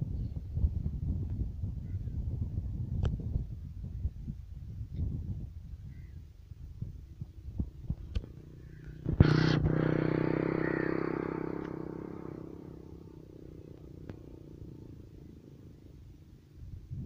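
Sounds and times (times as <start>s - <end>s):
engine with pulsing note: 8.3s - 16.4s.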